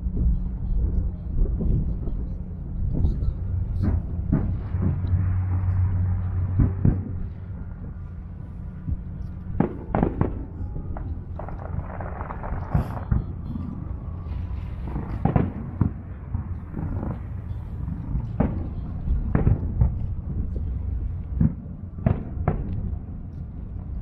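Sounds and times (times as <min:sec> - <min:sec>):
distant fireworks booming: 0:00.0 - 0:24.0
low rumble: 0:00.0 - 0:24.0.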